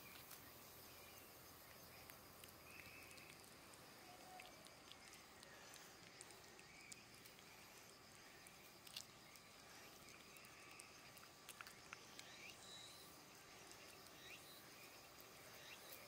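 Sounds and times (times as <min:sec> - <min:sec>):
cat licking soft clicks: 0:01.6 - 0:12.6.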